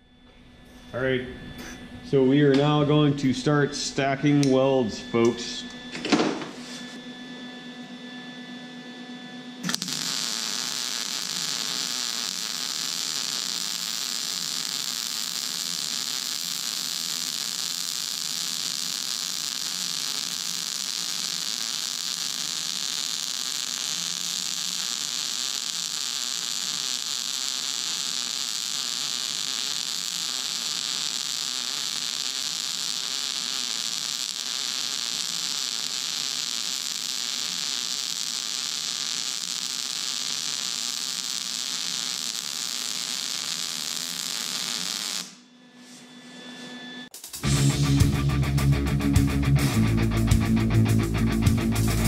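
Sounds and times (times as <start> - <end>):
welder humming: 0.0 - 8.0, 8.8 - 52.0
welding arc hissing: 9.6 - 45.4, 47.1 - 52.0.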